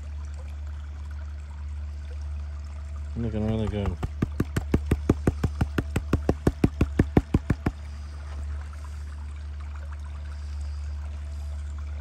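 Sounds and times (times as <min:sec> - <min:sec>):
steady low hum: 0:00.0 - 0:12.0
water sloshing in plastic pan: 0:03.2 - 0:07.9.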